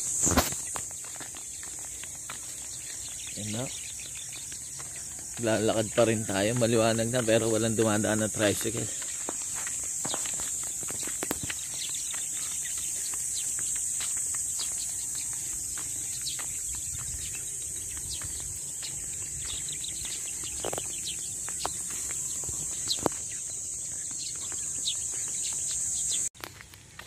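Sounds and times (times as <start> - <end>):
footsteps on concrete: 0.0 - 27.0
insects droning: 0.0 - 27.0.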